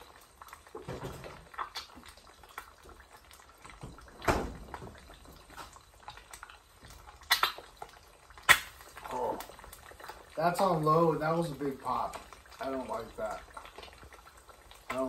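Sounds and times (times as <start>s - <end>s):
eggs frying in crackling fat: 0.0s - 15.0s.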